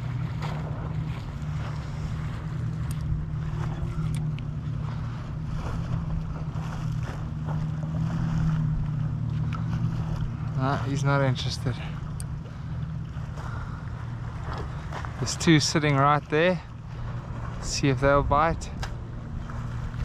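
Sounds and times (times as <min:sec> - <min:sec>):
low engine drone: 0:00.0 - 0:20.0
wind on microphone: 0:16.8 - 0:20.0.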